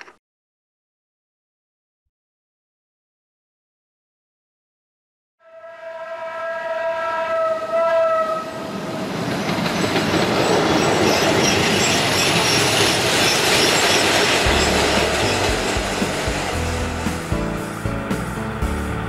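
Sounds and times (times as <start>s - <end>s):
train horn blast: 5.4s - 8.8s
train rumbling along track: 5.8s - 19.0s.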